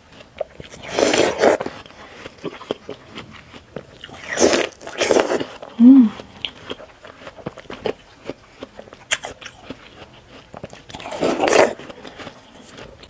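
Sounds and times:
chewing watermelon: 0.0s - 13.0s.

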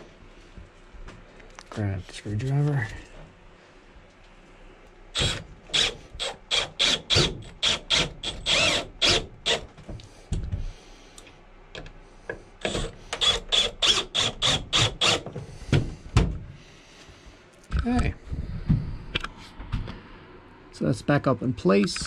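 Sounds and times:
drill driving screws clicking: 5.2s - 9.7s, 12.6s - 15.2s.

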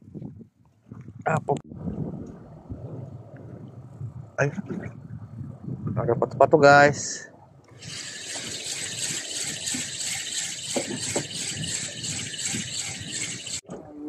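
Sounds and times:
fishing reel clicking rattle: 7.8s - 13.6s.

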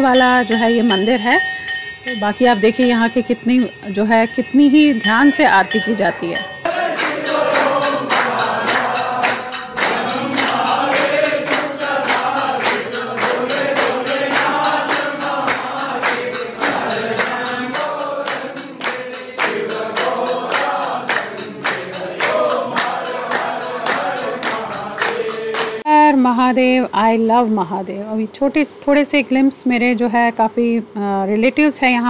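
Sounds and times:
rhythmic beat: 0.0s - 25.9s
congregation singing a hymn: 6.6s - 25.9s.

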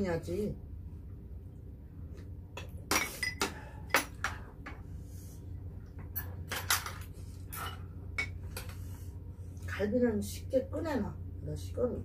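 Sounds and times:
low steady hum: 0.0s - 12.0s
utensils clinking against bowls: 2.6s - 4.2s.

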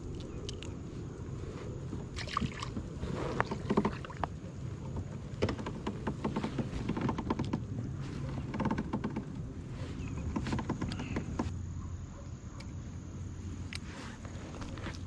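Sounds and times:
steady low rumble: 0.0s - 15.0s
fishing gear clicks and knocks: 2.0s - 11.6s.

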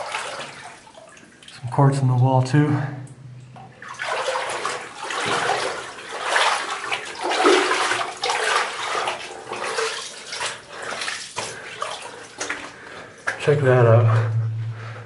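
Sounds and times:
footsteps splashing through water: 0.0s - 1.6s, 3.8s - 14.2s.

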